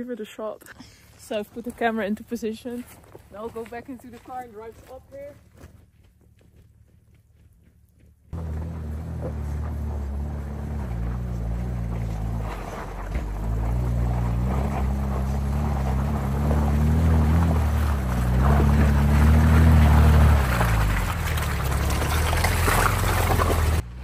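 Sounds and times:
tyre and trail noise: 0.0 - 24.0
truck engine pulling under load: 8.4 - 24.0.

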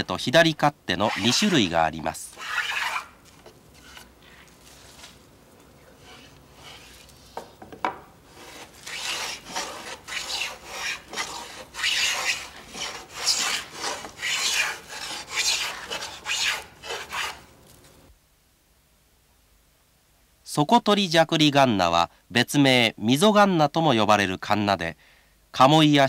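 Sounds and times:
hand plane rasping strokes: 2.3 - 3.1, 3.7 - 4.1, 6.0 - 7.5, 8.3 - 17.5.

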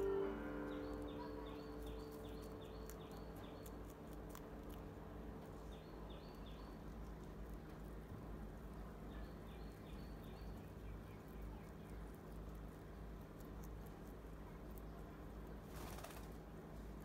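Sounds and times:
rhythmic high chirping: 0.0 - 4.4
rabbits nibbling greens: 0.0 - 17.0.

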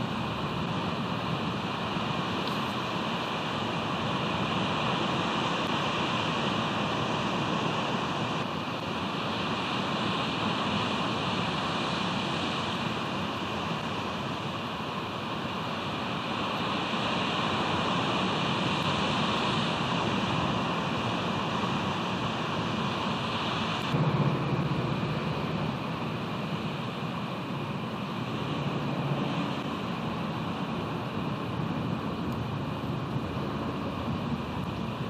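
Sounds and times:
ocean surf: 0.0 - 35.0
wind on microphone: 17.1 - 35.0.

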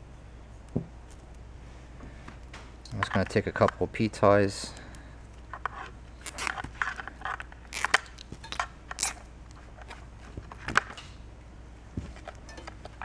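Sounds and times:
plastic wires crackling: 5.4 - 11.2.

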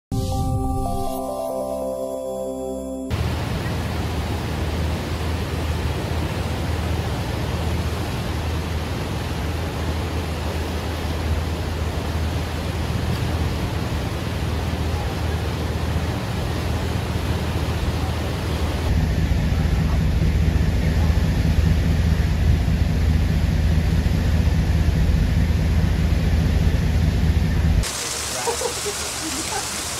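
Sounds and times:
floodwater rushing: 3.1 - 18.9, 27.8 - 29.9.

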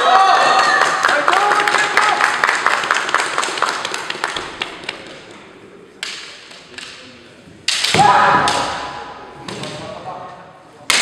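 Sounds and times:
bamboo swords clacking: 6.0 - 9.9.

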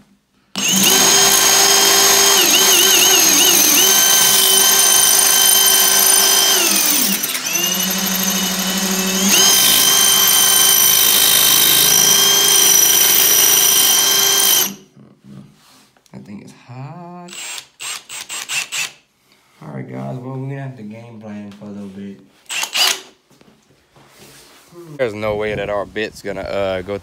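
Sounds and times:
cordless drill motor whine: 0.6 - 14.8, 17.3 - 18.9, 22.5 - 23.0.

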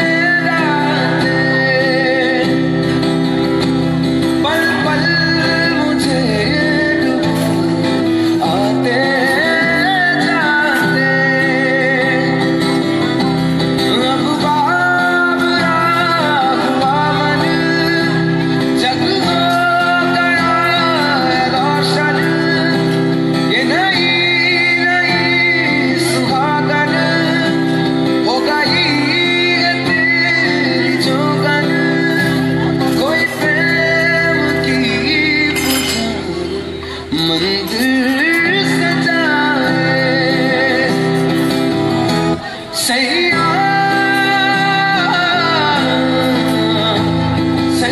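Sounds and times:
acoustic guitar: 0.0 - 47.9
man singing: 0.0 - 47.9.

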